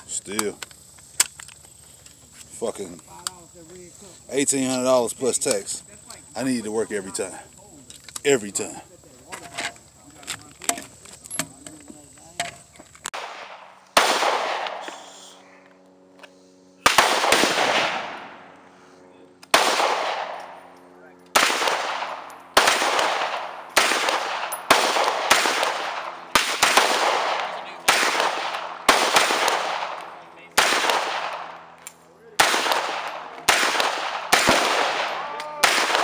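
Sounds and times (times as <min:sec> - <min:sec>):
pistol shots with echo: 0:13.2 - 0:15.0, 0:16.8 - 0:18.4, 0:19.4 - 0:20.7, 0:21.3 - 0:31.6, 0:32.4 - 0:36.0.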